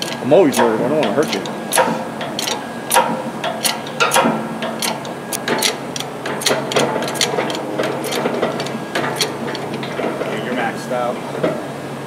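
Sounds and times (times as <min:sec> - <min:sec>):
hydraulic pump handle clicks: 0:00.0 - 0:09.6
low steady hum: 0:00.0 - 0:12.0.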